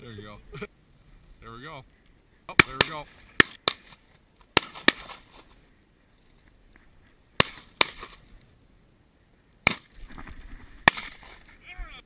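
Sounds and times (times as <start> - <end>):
shotgun shots: 7.4 - 8.2, 10.8 - 11.3.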